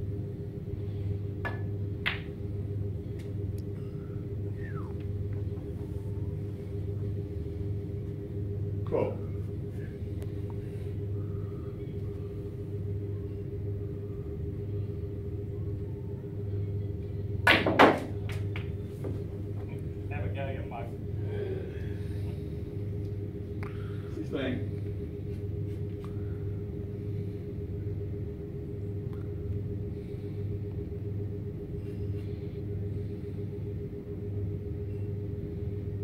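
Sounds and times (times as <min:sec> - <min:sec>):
steady low hum: 0:00.0 - 0:36.0
snooker balls clicking: 0:01.4 - 0:02.4, 0:17.5 - 0:19.2.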